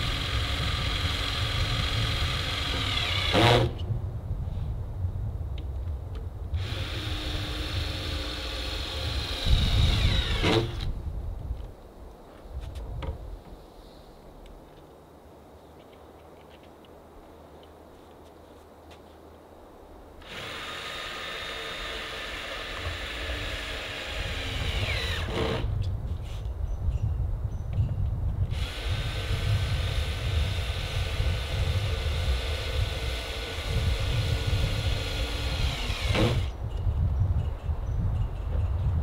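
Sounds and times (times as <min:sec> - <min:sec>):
electric drill whining: 0:00.0 - 0:03.8, 0:06.6 - 0:10.9, 0:20.2 - 0:25.8, 0:28.5 - 0:36.6.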